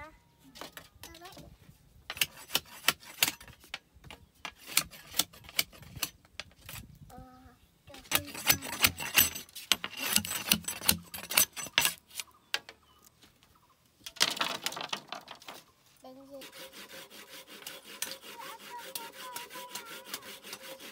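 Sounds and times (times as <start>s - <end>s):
bamboo scraping on bamboo: 0.4s - 7.0s, 7.9s - 12.5s, 14.2s - 20.9s
bamboo poles clattering: 2.1s - 6.8s, 8.0s - 12.8s, 14.0s - 16.0s.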